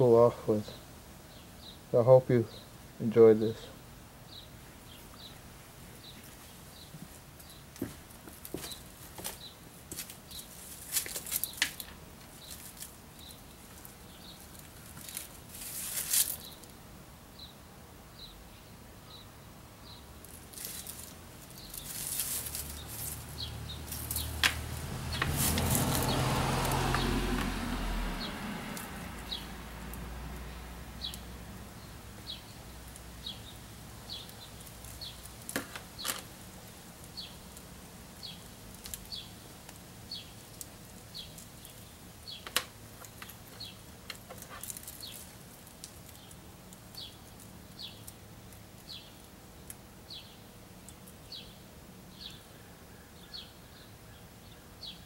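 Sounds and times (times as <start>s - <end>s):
faint outdoor background: 0.0s - 55.0s
bird chirping: 4.3s - 5.4s, 11.4s - 15.2s, 20.7s - 29.6s, 30.5s - 35.3s, 38.2s - 39.4s, 40.1s - 40.4s, 41.1s - 45.2s, 46.1s - 48.2s, 48.9s - 49.3s, 50.1s - 50.4s, 51.2s - 55.0s
loud rushing noise: 22.5s - 29.8s.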